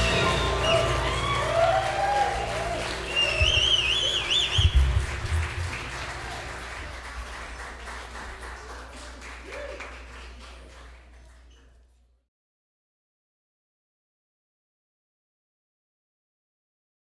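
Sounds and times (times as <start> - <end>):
audience applauding: 0.0 - 11.8
high wavering whistle: 3.1 - 5.0.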